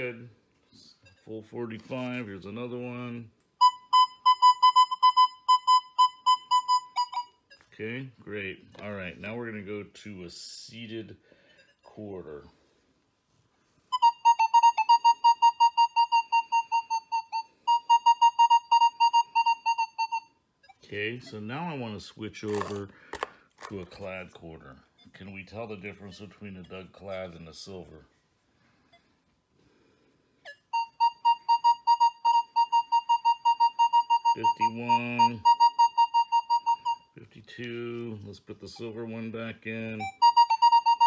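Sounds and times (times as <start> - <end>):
metal detector beeps: 3.6 - 7.8, 11.4 - 12.0, 30.5 - 37.2.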